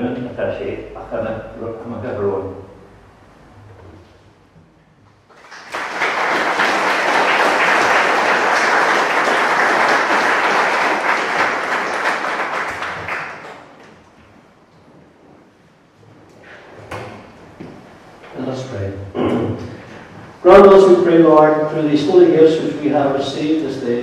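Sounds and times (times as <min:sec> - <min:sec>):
audience applauding: 0:05.3 - 0:13.9.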